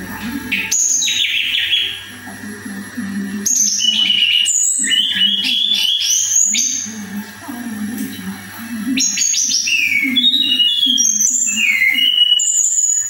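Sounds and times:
songbird whistling: 0:00.0 - 0:02.2, 0:03.4 - 0:07.2, 0:08.8 - 0:13.0.

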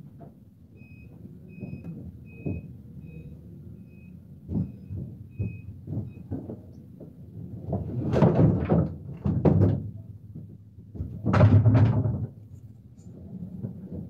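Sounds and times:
vehicle warning beeper: 0:00.7 - 0:06.4
dull knocks and thumps: 0:04.4 - 0:12.6.

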